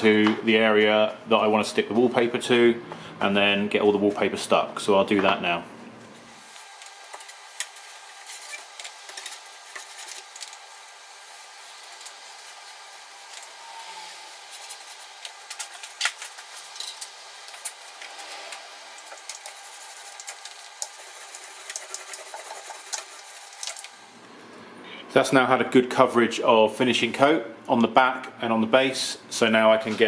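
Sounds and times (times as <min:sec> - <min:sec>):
paintbrush rubbing on board: 0:20.9 - 0:23.6.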